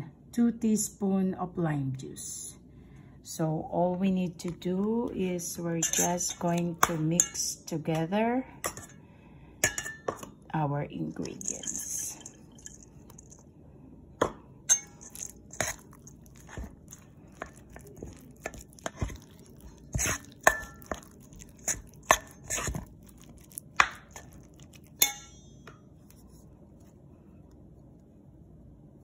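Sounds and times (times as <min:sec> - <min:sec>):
metal utensil clinking against bowl: 0:05.7 - 0:07.5, 0:09.6 - 0:10.3, 0:11.2 - 0:13.4, 0:14.7 - 0:16.6, 0:17.4 - 0:22.8, 0:24.9 - 0:25.6.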